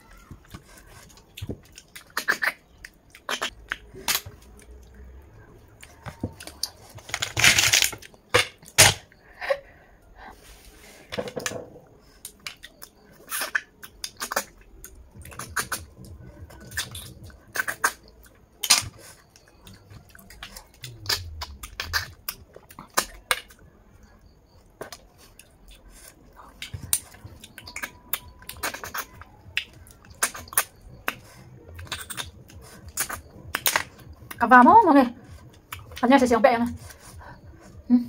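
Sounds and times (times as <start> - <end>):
chewing: 0.0 - 8.3, 12.0 - 34.4, 35.2 - 36.0
sucking smacks and slurps: 0.3 - 5.0, 12.2 - 23.6, 24.8 - 34.4.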